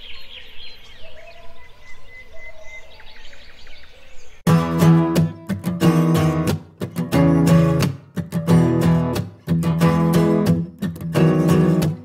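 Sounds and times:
acoustic guitar strumming chords: 0:04.5 - 0:12.0.

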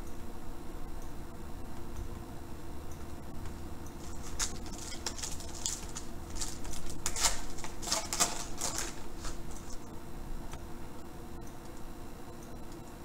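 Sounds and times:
foil wrapper crinkling and tearing: 0:04.0 - 0:09.9.

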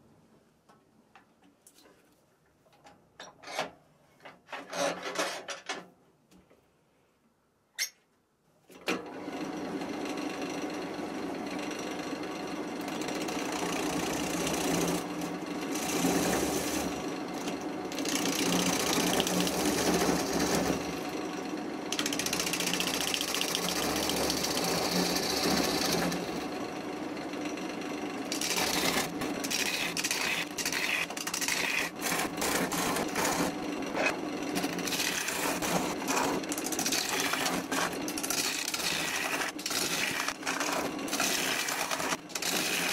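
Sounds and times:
lathe motor hum: 0:12.5 - 0:42.9
gouge scraping wood: 0:18.0 - 0:20.9, 0:28.3 - 0:42.9
rapid ticks of gouge: 0:28.3 - 0:32.6.

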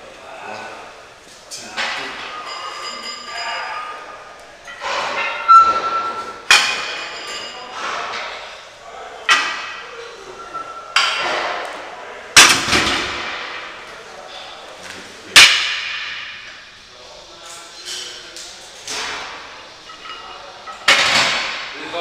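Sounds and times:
weight plates clanking: 0:02.3 - 0:07.8, 0:09.3 - 0:11.6.

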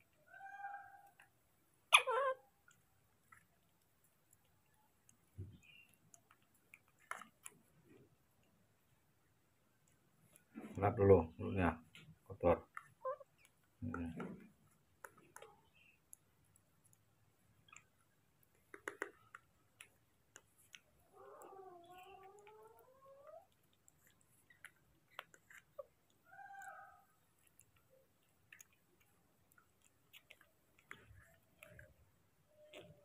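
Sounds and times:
baby macaque calling: 0:02.0 - 0:02.4
mouth clicks and chewing: 0:02.0 - 0:08.6, 0:11.8 - 0:33.0.

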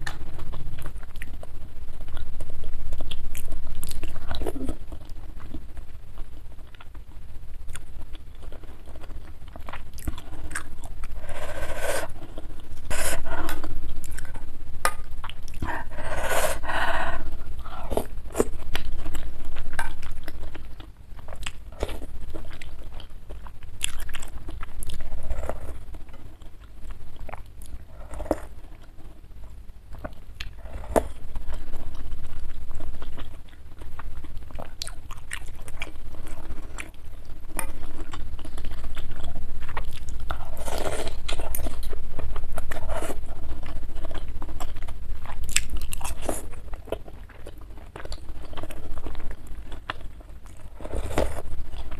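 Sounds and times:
wet chewing mouth sounds: 0:00.0 - 0:07.0, 0:07.7 - 0:29.1, 0:29.9 - 0:51.9
steady low hum: 0:00.0 - 0:51.9.

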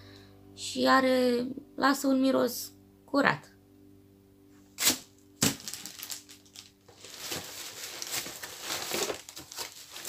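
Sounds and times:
packaging rustling and crinkling: 0:04.8 - 0:10.0.

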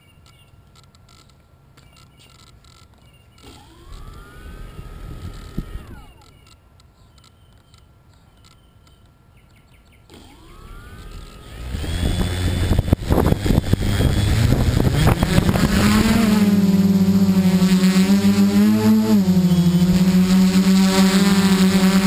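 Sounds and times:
quadcopter motors whining: 0:03.3 - 0:06.6, 0:10.1 - 0:22.0.

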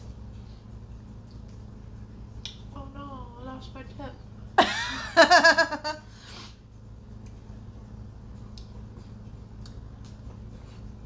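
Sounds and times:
low room hum: 0:00.0 - 0:11.0
woman laughing: 0:04.6 - 0:06.1.

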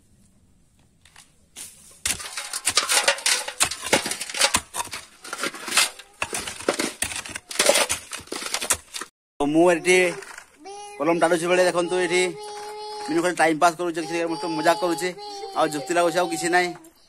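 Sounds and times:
hoe scraping soil: 0:01.6 - 0:09.1.

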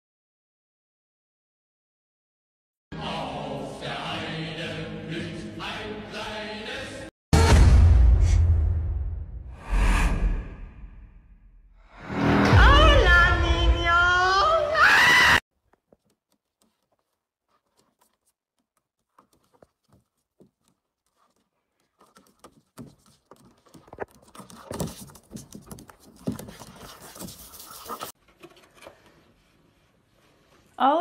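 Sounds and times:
animals scrambling on plastic slide: 0:19.0 - 0:28.1.

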